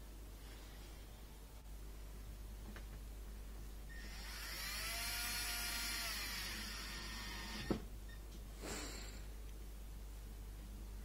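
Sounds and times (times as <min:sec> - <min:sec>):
drill motor whine: 0:03.9 - 0:07.8.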